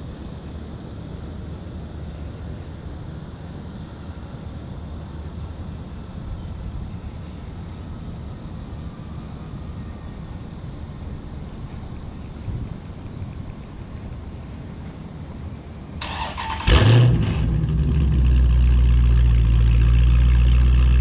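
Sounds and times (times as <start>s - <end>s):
car engine idling: 16.0s - 21.0s.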